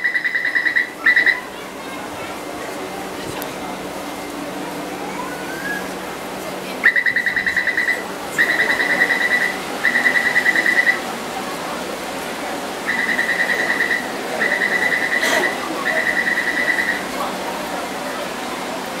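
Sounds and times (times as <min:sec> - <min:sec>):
rapid electronic door warning beeps: 0:00.0 - 0:01.4, 0:06.8 - 0:11.0, 0:12.9 - 0:17.1.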